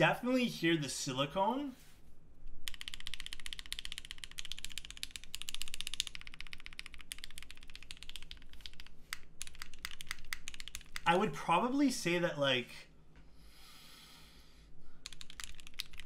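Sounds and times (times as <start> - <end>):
fast mechanical keyboard typing: 2.6 - 11.2, 15.0 - 16.0.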